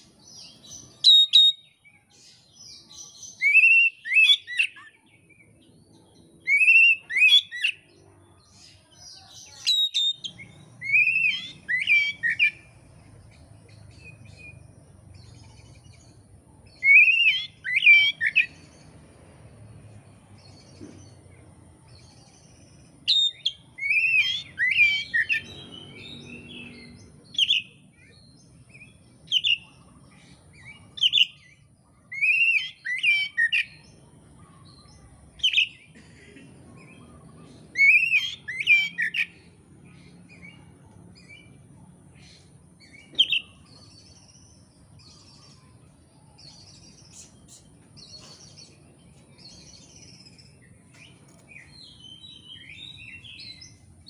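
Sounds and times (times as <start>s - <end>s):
bird singing whistled notes: 0.2s - 5.5s, 6.4s - 8.0s, 9.4s - 12.7s, 16.7s - 18.7s, 22.3s - 29.8s, 30.6s - 33.8s, 37.7s - 39.4s, 42.8s - 45.7s.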